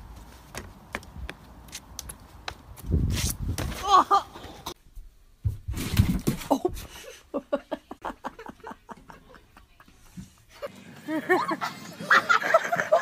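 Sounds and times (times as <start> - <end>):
person laughing in bursts: 10.5 - 13.0.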